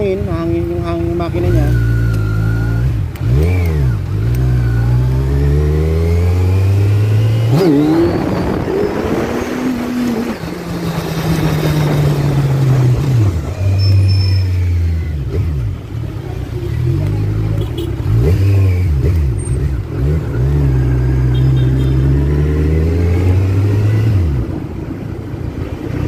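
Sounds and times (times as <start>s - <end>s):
road noise: 0.0s - 26.0s
wind noise: 7.5s - 13.9s.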